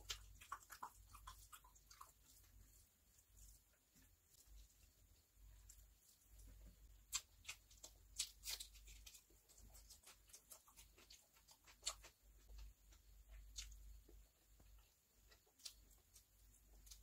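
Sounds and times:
chewing and lip smacks: 0.0s - 2.8s, 6.4s - 17.0s.

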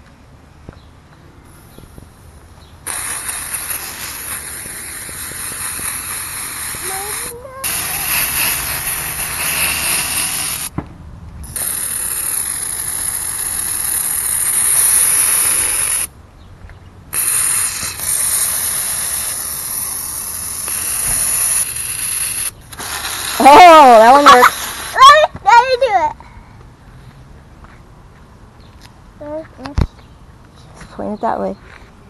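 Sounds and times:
aerosol can spraying hiss: 2.8s - 10.7s, 11.5s - 16.1s, 17.1s - 25.3s.

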